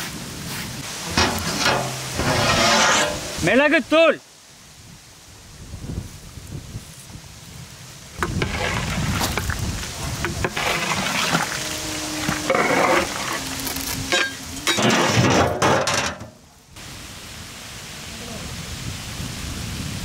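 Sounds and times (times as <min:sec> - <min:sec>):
ladle scraping a metal pot: 0:01.0 - 0:03.4, 0:08.2 - 0:16.2
metal lid clattering: 0:01.1 - 0:03.4, 0:14.1 - 0:16.4.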